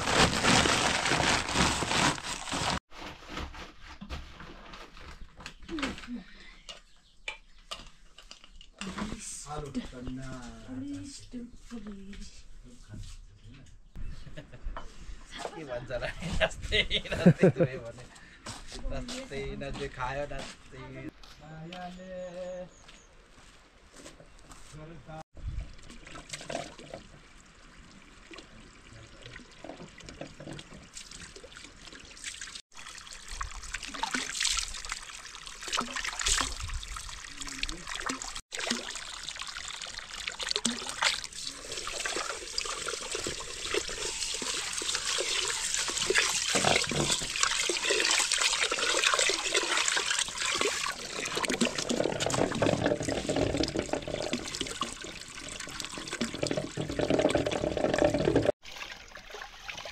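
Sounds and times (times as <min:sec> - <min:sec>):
water running and trickling: 0:25.4 - 0:59.9.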